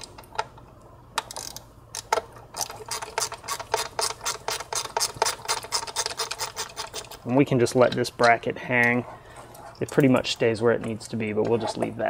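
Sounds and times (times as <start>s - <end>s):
hand ratchet clicking: 1.2s - 7.2s.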